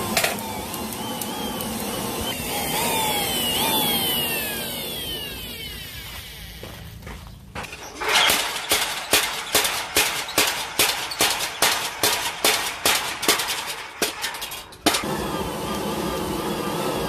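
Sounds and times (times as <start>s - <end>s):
power hammer clanging on metal: 7.6s - 15.2s.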